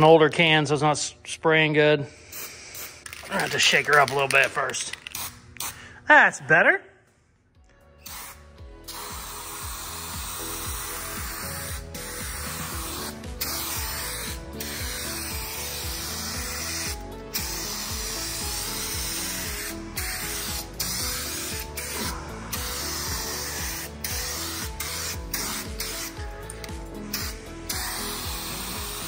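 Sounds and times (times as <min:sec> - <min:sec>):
background music: 0:00.0 - 0:29.0
aerosol spray can hissing: 0:02.2 - 0:03.5, 0:04.9 - 0:05.8, 0:08.0 - 0:29.0.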